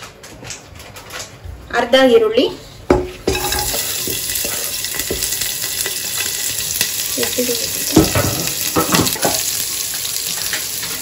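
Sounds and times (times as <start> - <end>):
onion sizzling in hot oil: 3.4 - 11.0.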